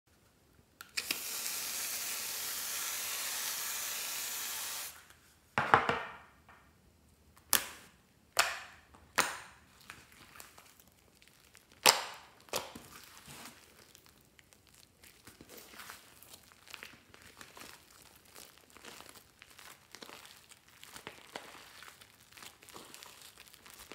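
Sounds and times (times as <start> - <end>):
aerosol can spraying hiss: 1.0 - 5.0
crackly squishing of foam: 9.1 - 23.9.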